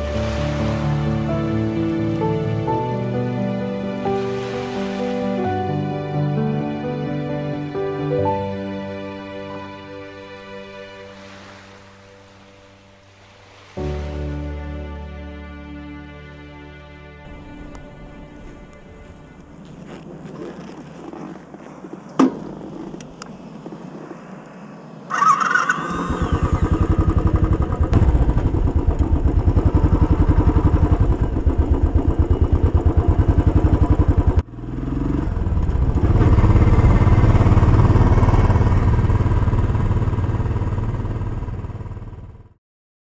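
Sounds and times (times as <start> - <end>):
motorcycle electric starter: 25.1 - 34.4
motorcycle engine running: 25.1 - 42.6.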